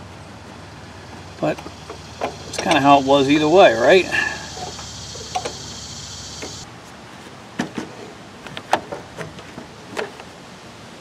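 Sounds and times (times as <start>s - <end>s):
steady high hiss: 0.0s - 6.7s.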